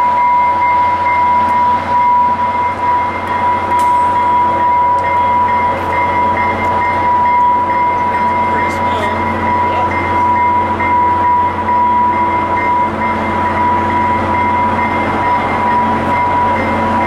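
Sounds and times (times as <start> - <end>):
high whine: 0.0 - 17.0
train running noise: 0.0 - 17.0.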